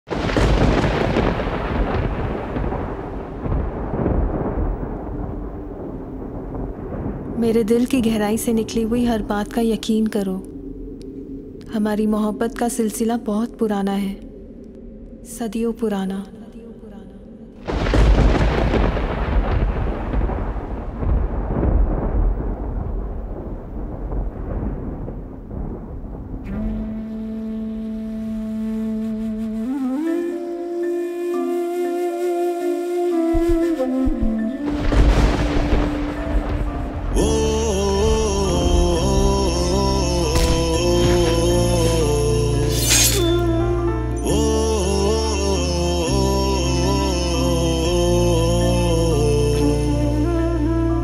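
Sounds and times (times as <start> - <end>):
thunder rumbling: 0.1 - 13.8, 17.6 - 28.6, 33.2 - 44.4.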